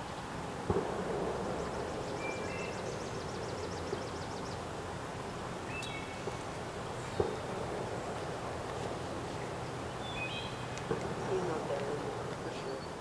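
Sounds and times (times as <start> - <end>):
steady background hiss: 0.0 - 13.0
bird chirping: 1.4 - 4.8, 5.6 - 7.6, 9.0 - 13.0
rapid faint high ticks: 10.7 - 12.5.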